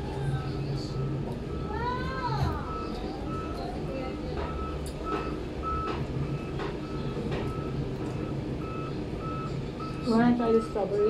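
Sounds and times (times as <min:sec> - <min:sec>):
reversing alarm beeping: 0:00.3 - 0:11.0.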